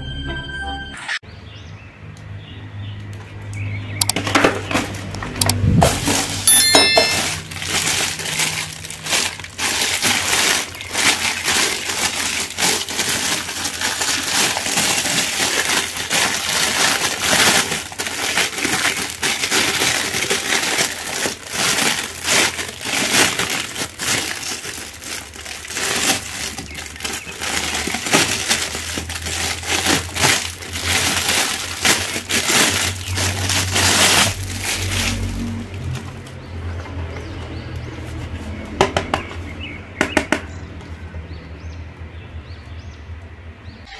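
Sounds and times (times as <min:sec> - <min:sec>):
plastic wrapping crinkling: 0:04.1 - 0:38.4.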